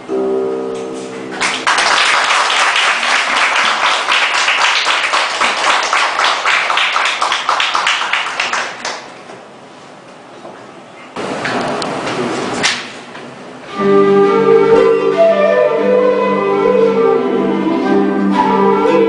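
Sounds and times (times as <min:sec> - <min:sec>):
audience applause: 0:01.4 - 0:09.2
harmonica and harp chord: 0:13.7 - 0:19.0.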